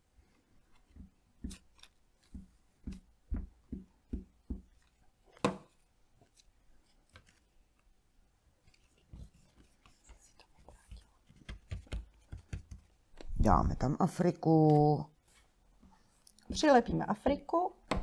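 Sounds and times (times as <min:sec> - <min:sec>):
glue stick tapping on paper: 0:10.9 - 0:13.3.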